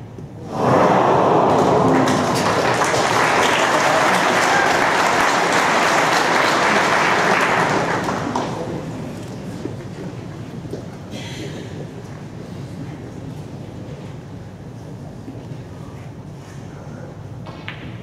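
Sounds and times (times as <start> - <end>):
audience applauding: 0.5 - 8.9.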